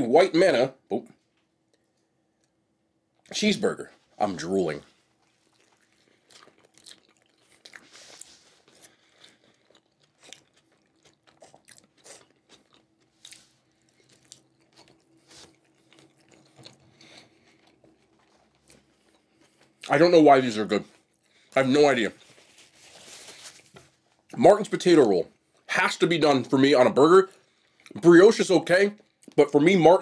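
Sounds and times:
person chewing with mouth clicks: 0:05.2 - 0:19.9.

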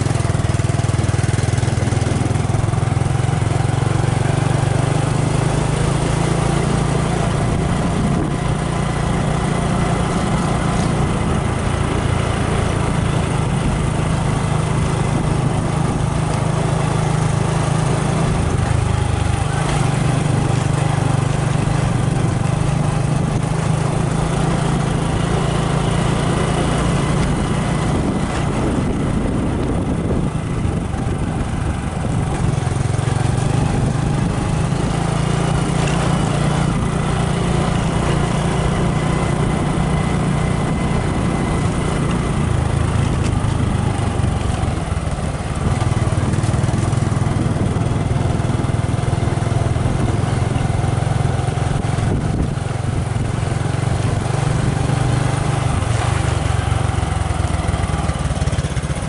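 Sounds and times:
motorcycle engine running: 0:00.0 - 0:59.0
road and wind noise: 0:00.0 - 0:59.0.

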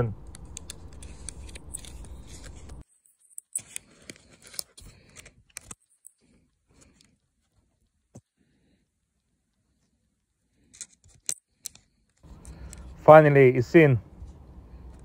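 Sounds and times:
low background hum: 0:00.0 - 0:15.0
fingers clicking ribbon cable connector: 0:00.2 - 0:06.1, 0:10.7 - 0:12.9.

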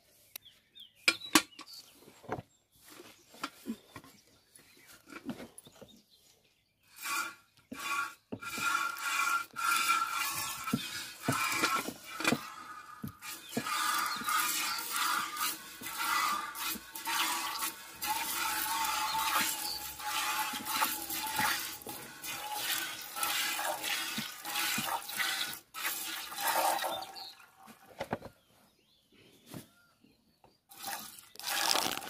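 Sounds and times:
milk squirting into metal pail: 0:06.9 - 0:27.5, 0:30.7 - 0:32.0.

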